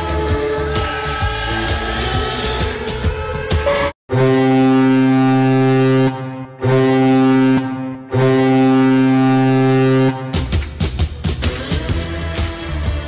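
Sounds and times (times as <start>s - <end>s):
arena goal horn blasts: 4.1s - 10.5s.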